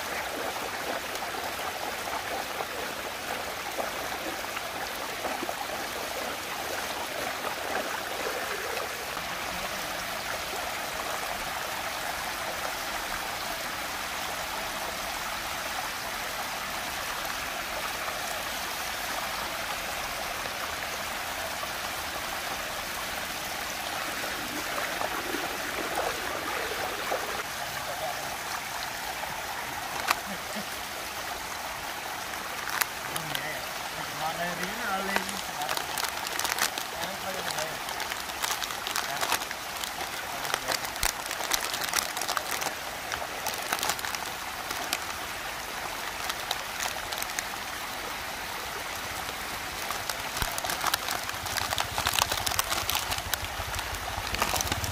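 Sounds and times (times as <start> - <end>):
water swirling down a vortex: 0.0 - 11.8, 22.5 - 27.8, 48.4 - 54.9.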